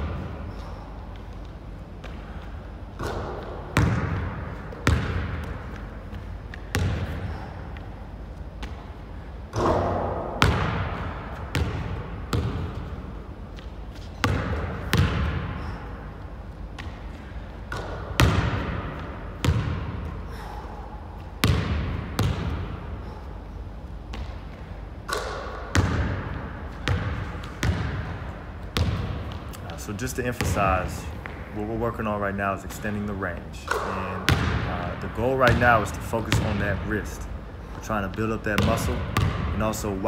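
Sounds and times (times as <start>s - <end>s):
basketball bouncing on hardwood: 3.0s - 7.4s, 9.6s - 12.8s, 14.2s - 15.6s, 17.7s - 20.0s, 21.4s - 22.7s, 25.1s - 28.2s, 28.8s - 29.5s, 33.7s - 34.7s, 38.6s - 39.5s.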